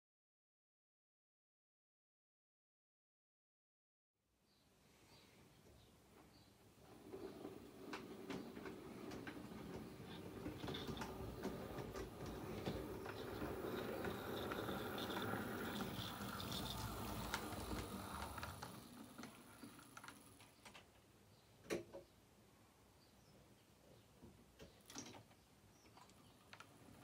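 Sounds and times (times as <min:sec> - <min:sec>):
model train rumbling and rattling: 0:07.0 - 0:20.5
clicks over rail joints: 0:07.4 - 0:20.9.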